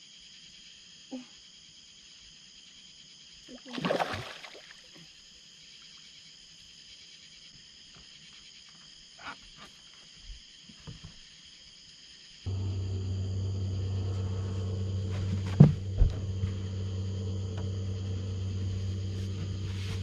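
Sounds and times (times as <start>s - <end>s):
night insects chirping: 0.0s - 20.0s
handling noise: 12.5s - 20.0s.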